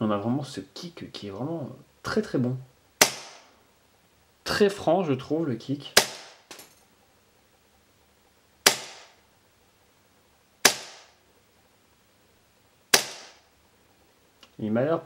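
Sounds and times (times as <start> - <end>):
airsoft pistol shots: 3.0 - 3.5, 6.0 - 6.6, 8.6 - 9.2, 10.6 - 11.2, 12.9 - 13.4.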